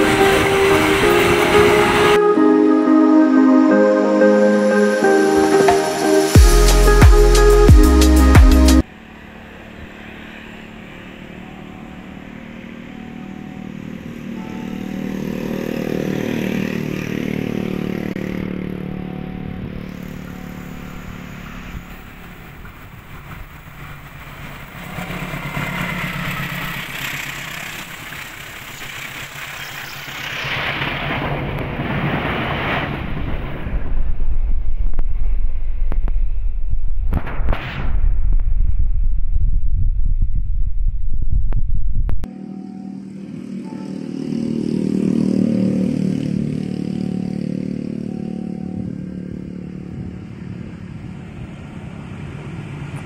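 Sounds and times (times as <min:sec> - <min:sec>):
train rumbling in tunnel: 0:00.0 - 0:02.7, 0:18.6 - 0:37.0, 0:48.2 - 0:53.0
locomotive engine running: 0:00.0 - 0:30.6.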